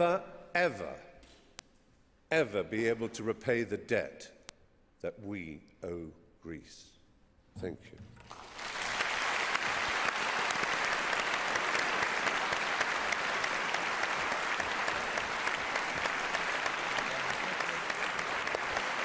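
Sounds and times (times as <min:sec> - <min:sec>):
audience applauding: 0:08.2 - 0:19.0.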